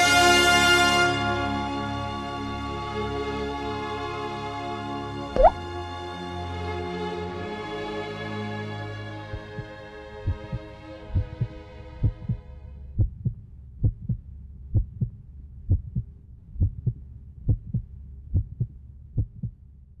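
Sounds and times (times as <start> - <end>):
heartbeat double thumps: 5.4 - 5.6, 9.4 - 19.6.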